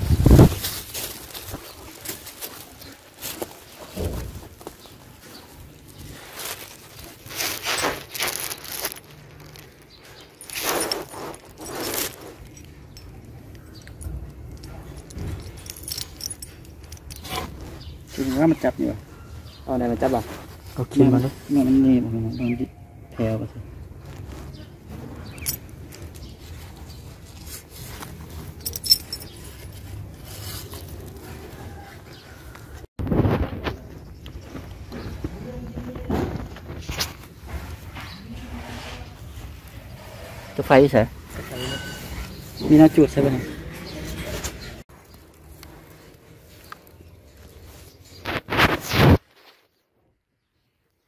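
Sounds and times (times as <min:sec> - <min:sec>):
wire rustling and scraping: 0:00.0 - 0:22.4, 0:23.8 - 0:49.8
light metallic clinks: 0:10.1 - 0:17.4, 0:28.4 - 0:29.9.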